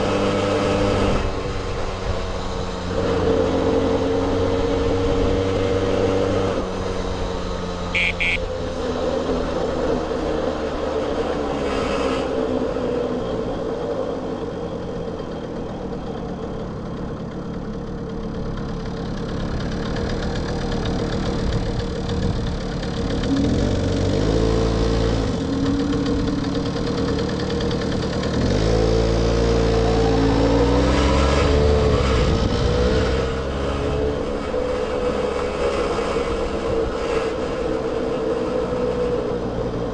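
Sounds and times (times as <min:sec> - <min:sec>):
two-stroke moped engine running: 0:06.7 - 0:09.4, 0:14.4 - 0:33.0.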